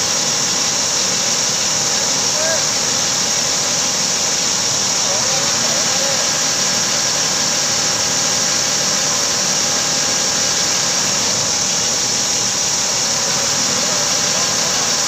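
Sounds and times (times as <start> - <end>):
diesel engine running: 0.0 - 15.0
steady whine: 0.0 - 15.0.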